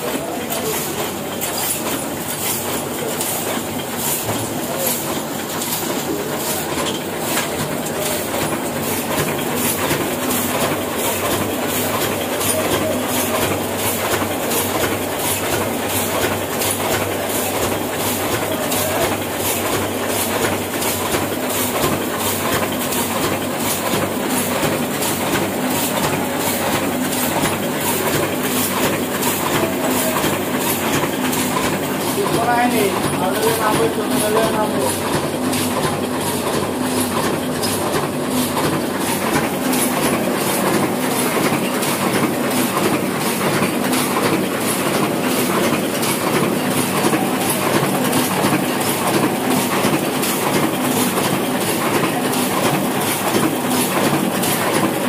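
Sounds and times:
printing press clattering: 0.0 - 55.0.

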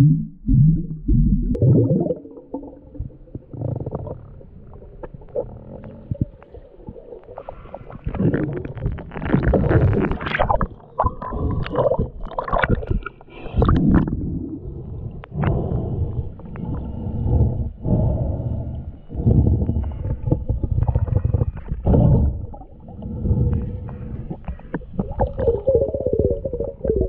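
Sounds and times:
muffled underwater water sloshing: 0.0 - 27.0.

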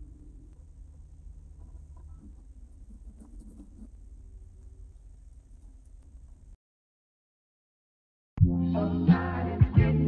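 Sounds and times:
faint low rumble: 0.0 - 6.6.

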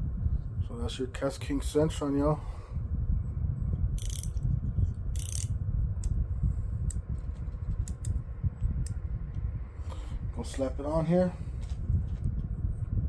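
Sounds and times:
low handling rumble: 0.0 - 13.0
fishing reel bail clicks: 4.0 - 4.4, 5.2 - 5.5.

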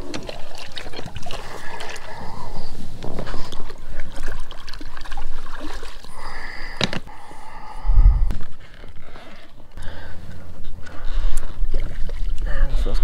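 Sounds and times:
shallow water sloshing and splashing: 0.0 - 6.9, 10.3 - 13.0.

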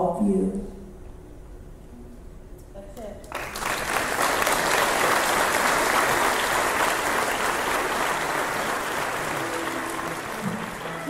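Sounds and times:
audience applauding: 3.3 - 11.0
bowed string ensemble playing: 8.3 - 11.0.

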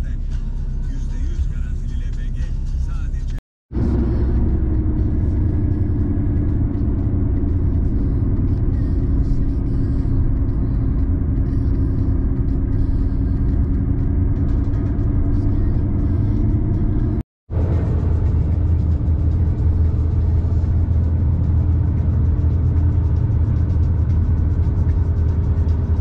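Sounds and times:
road and engine noise in vehicle: 0.0 - 26.0.

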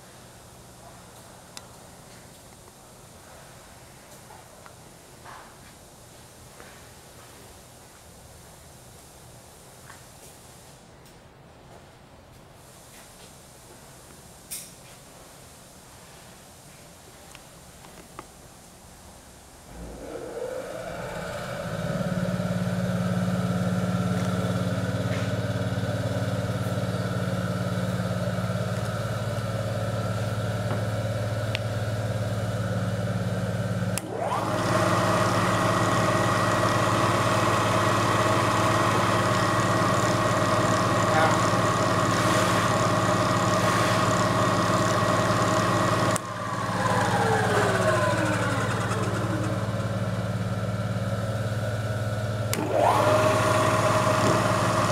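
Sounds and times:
milling machine motor humming: 19.7 - 54.9.

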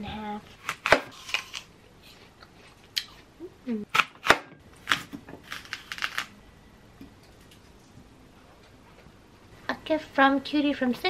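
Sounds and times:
blade scraping apple core: 4.9 - 6.3.

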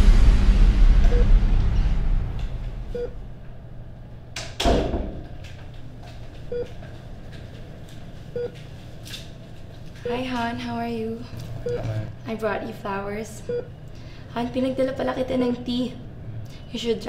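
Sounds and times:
loud knock: 4.6 - 5.2
patient monitor beeping: 11.6 - 12.1.

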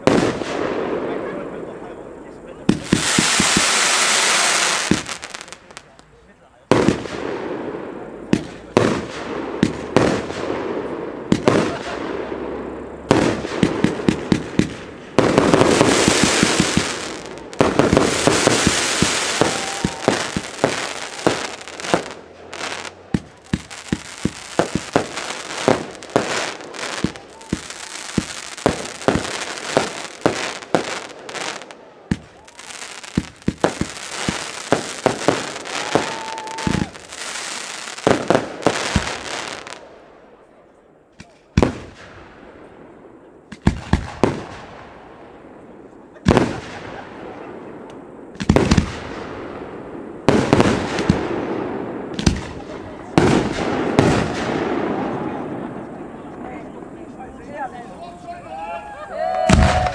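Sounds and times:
firework bangs: 0.0 - 6.1, 6.7 - 40.2, 41.2 - 57.7, 59.2 - 59.9
firework hissing crackle: 0.0 - 6.2, 6.8 - 39.8, 46.2 - 56.0.

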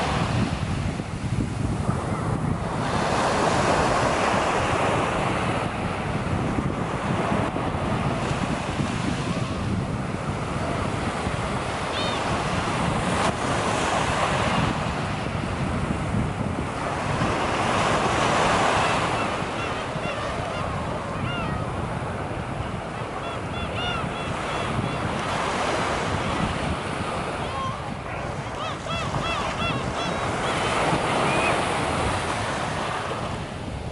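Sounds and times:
waves breaking on sandy beach: 0.0 - 33.9
gull calls: 18.8 - 21.7, 23.2 - 25.1, 27.4 - 31.6.

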